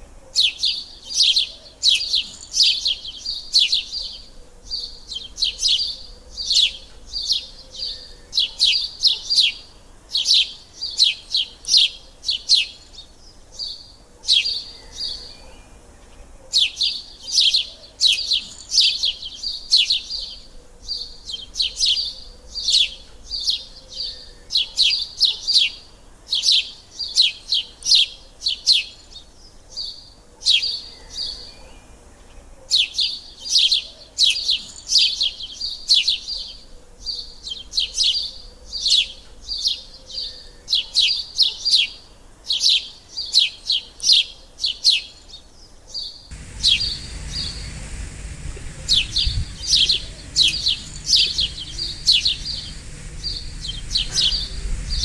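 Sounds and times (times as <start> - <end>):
small birds chirping: 46.1 - 55.0.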